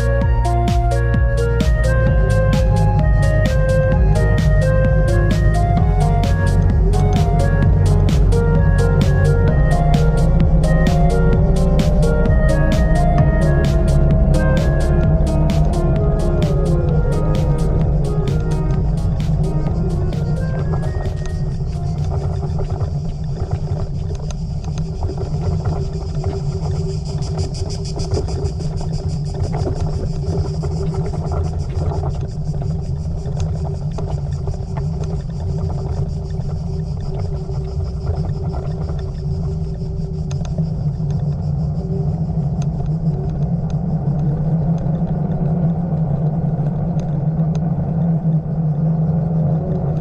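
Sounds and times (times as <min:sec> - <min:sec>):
tyre rumble: 0:00.0 - 0:39.9
wind on camera: 0:01.8 - 0:50.0.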